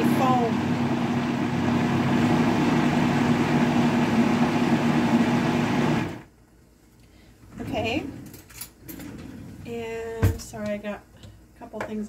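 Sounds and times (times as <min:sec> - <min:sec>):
blender motor running: 0:00.0 - 0:06.2.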